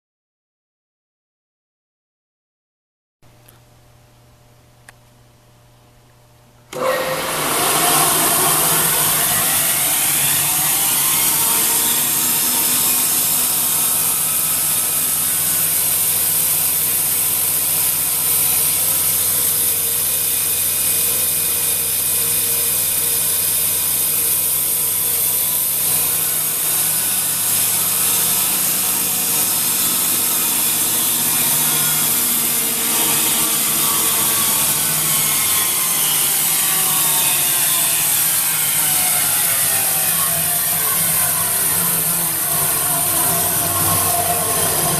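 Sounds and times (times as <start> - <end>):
bandsaw running: 6.7 - 44.9.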